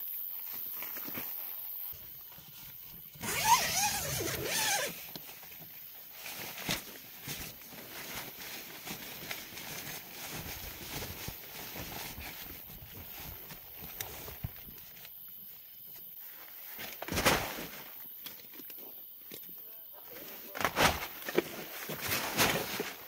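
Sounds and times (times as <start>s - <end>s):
tent zipper pulled: 3.2s - 5.0s.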